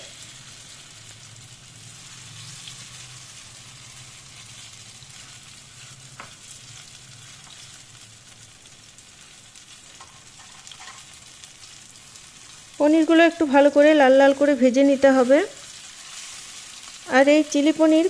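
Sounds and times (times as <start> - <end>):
food sizzling in hot oil: 0.0 - 18.0
metal spatula tapping and scraping: 6.1 - 6.4, 9.9 - 11.1.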